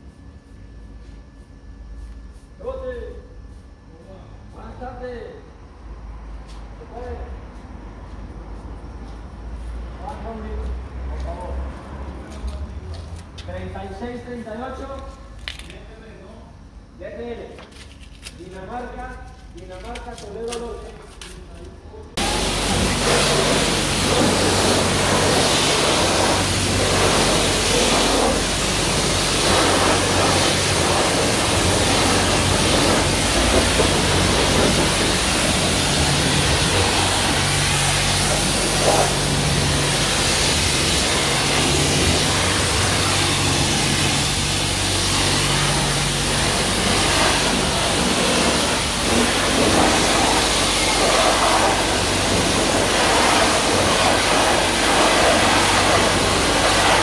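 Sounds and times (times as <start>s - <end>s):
pressure washer spray hissing: 22.2s - 57.0s.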